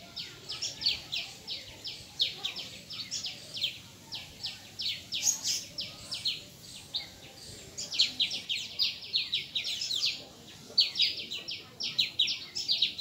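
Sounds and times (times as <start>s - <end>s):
high chirping calls: 0.0s - 13.0s.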